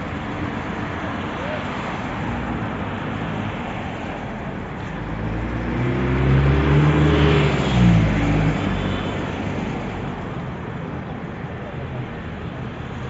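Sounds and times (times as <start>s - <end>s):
cars driving past: 0.0s - 10.4s
steady road hum: 0.0s - 13.0s.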